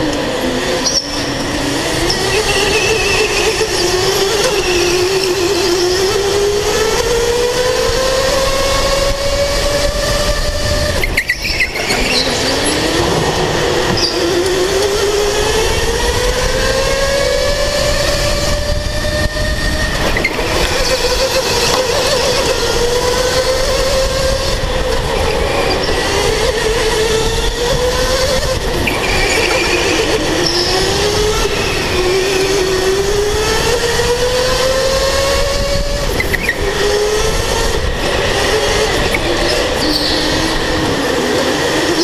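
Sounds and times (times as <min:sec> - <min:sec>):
distant go-kart whines: 0:00.0 - 0:42.0
electric go-kart motor whining: 0:00.0 - 0:42.0
steady rumble: 0:08.2 - 0:39.8.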